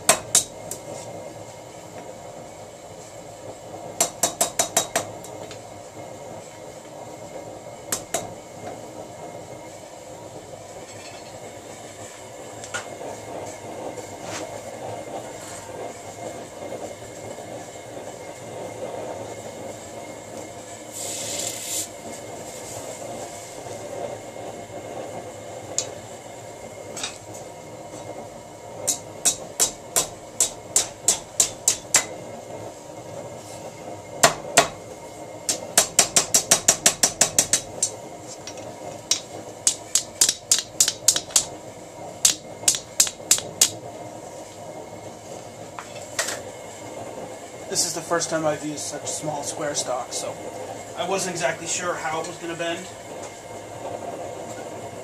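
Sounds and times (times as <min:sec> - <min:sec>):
hammer striking hot steel: 0:00.0 - 0:01.2, 0:03.8 - 0:05.6, 0:07.8 - 0:08.8, 0:10.8 - 0:11.5, 0:26.9 - 0:28.2, 0:28.8 - 0:32.4, 0:34.2 - 0:43.9
steady background noise: 0:00.0 - 0:55.0.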